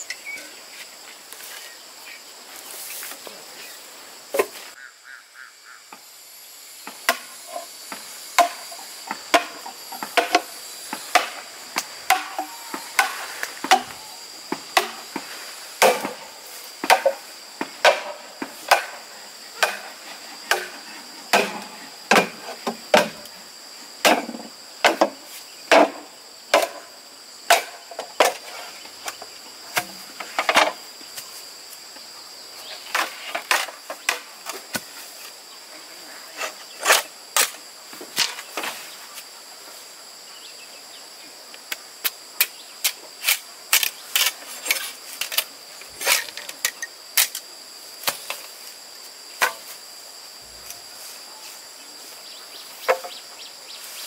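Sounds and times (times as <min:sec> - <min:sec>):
high drone of insects: 0:00.0 - 0:54.0
machete chopping bamboo: 0:08.4 - 0:15.2, 0:15.8 - 0:16.2, 0:16.8 - 0:17.2, 0:17.8 - 0:19.0, 0:19.6 - 0:23.3, 0:24.0 - 0:26.8, 0:27.5 - 0:28.4.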